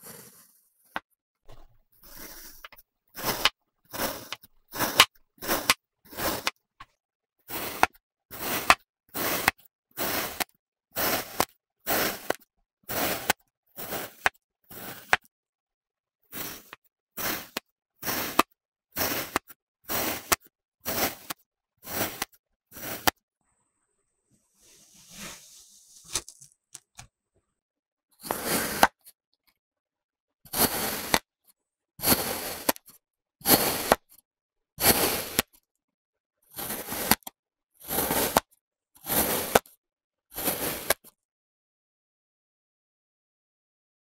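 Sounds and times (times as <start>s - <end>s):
kinetic sand being cut: 0.0s - 6.6s, 7.5s - 15.3s, 16.3s - 23.2s, 24.5s - 27.0s, 28.2s - 29.0s, 30.5s - 31.3s, 32.0s - 34.1s, 34.8s - 35.5s, 36.5s - 39.7s, 40.3s - 41.1s.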